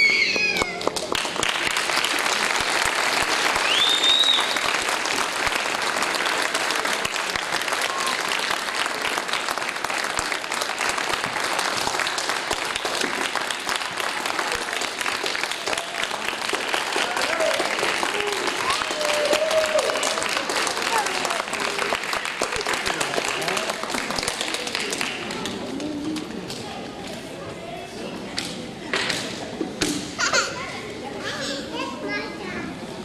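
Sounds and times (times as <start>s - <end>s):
audience applauding: 0.0s - 26.4s.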